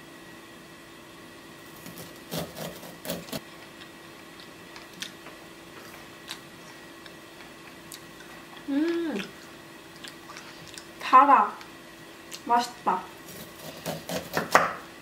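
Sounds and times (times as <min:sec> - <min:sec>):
faint steady hum: 0:00.0 - 0:15.0
knife cutting corn on wooden board: 0:01.8 - 0:03.4, 0:13.3 - 0:14.8.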